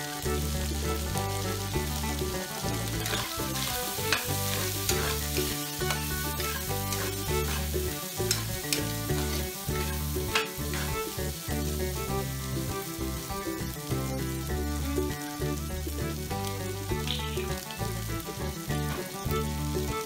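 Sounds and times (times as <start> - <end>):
background music with bass: 0.0 - 20.0
food sizzling in a wok: 0.0 - 20.0
metal spatula clanking on pan: 3.0 - 11.2.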